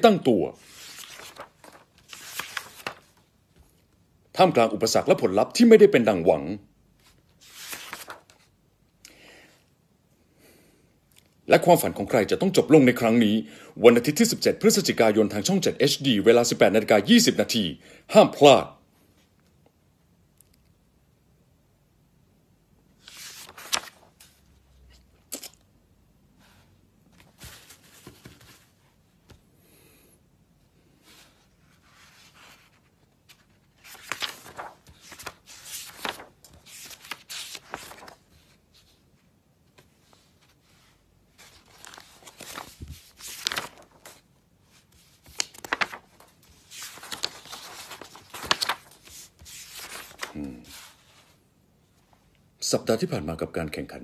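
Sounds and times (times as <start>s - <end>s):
paper rustling: 0.0s - 5.1s, 7.0s - 8.6s, 23.0s - 25.6s, 26.4s - 29.5s, 31.0s - 51.4s.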